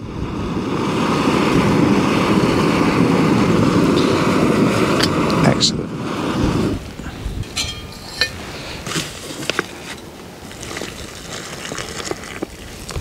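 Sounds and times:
metal pot and lid clinking: 0:07.4 - 0:08.4.

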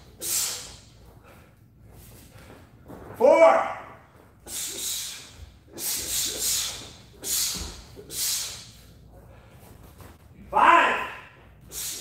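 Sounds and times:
hissing exhalations through teeth: 0:04.5 - 0:08.8.

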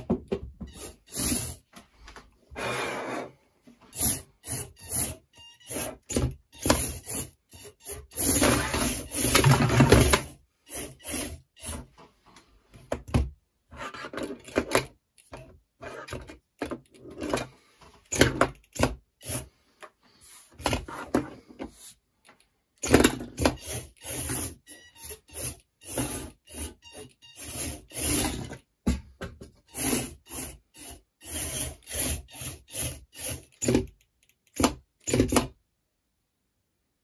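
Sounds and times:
robot scraping on wooden table: 0:00.7 - 0:01.7, 0:02.5 - 0:11.9, 0:19.2 - 0:19.5, 0:23.2 - 0:28.6, 0:29.7 - 0:33.7.

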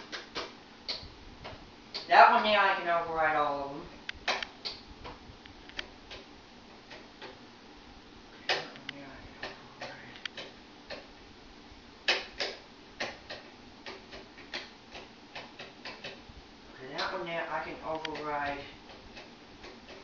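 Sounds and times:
toggle switches clicking: 0:08.5 - 0:11.1.

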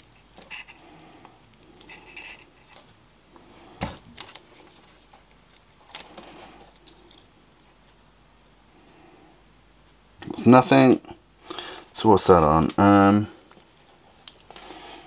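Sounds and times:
light rustling of wires: 0:00.0 - 0:07.3.

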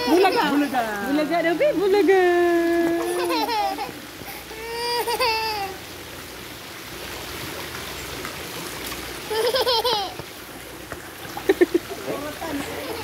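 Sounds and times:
toddler whining cry: 0:00.0 - 0:00.6, 0:03.0 - 0:05.8
running water in pool: 0:00.0 - 0:13.0.

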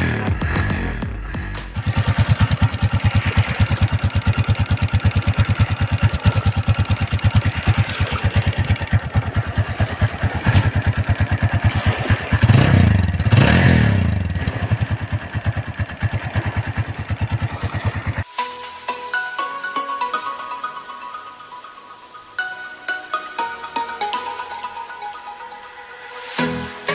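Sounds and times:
motorcycle engine idling: 0:00.0 - 0:18.3
motorcycle engine revving: 0:00.0 - 0:18.3.

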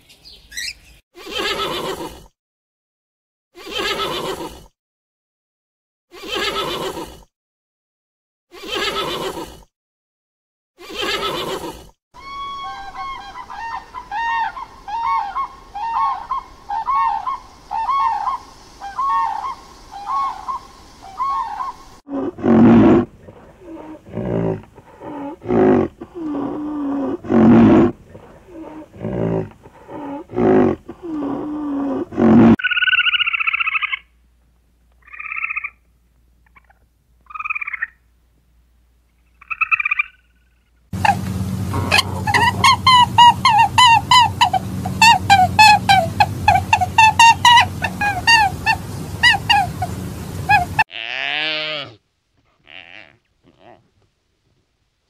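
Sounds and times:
horse whinny: 0:06.2 - 0:07.1, 0:08.6 - 0:09.4
loud low animal calls: 0:10.8 - 0:34.0, 0:41.0 - 0:53.9
evenly repeated animal calls: 0:28.5 - 0:34.0, 0:35.0 - 0:35.8, 0:41.0 - 0:53.8.

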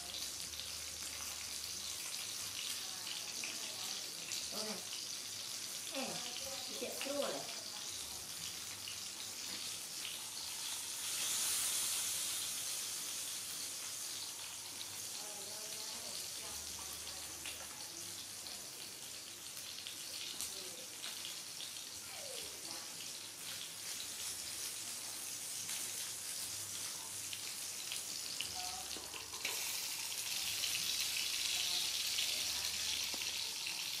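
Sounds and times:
steady hissing noise: 0:08.9 - 0:15.8.

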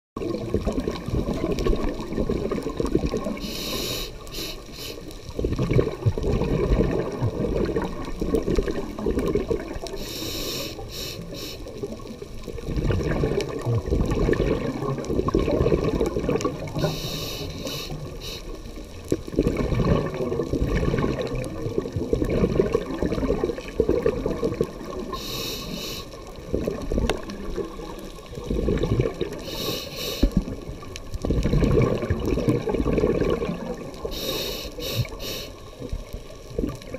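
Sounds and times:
bubbling exhaled air: 0:00.2 - 0:36.9
regulator inhale hiss: 0:03.4 - 0:05.3, 0:09.9 - 0:11.8, 0:16.8 - 0:18.6, 0:25.1 - 0:26.2, 0:29.3 - 0:30.5, 0:34.0 - 0:35.8.

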